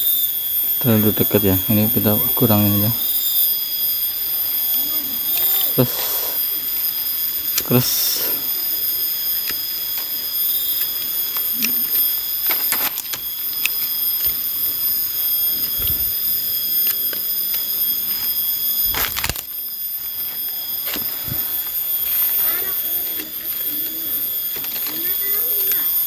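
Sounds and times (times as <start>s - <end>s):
shrill insect chorus: 0.0s - 26.0s
sharp clicks: 9.1s - 19.6s.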